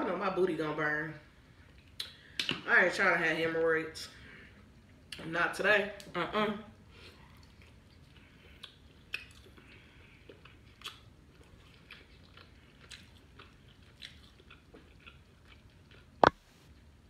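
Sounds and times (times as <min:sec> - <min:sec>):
close-up chewing food: 0:06.9 - 0:17.0.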